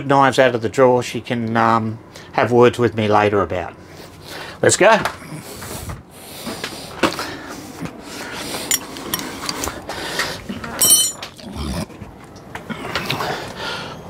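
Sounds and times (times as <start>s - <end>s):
metallic jingle: 8.7s - 9.3s, 10.8s - 11.2s
hand tools clicking and knocking: 8.7s - 9.7s, 10.8s - 11.3s.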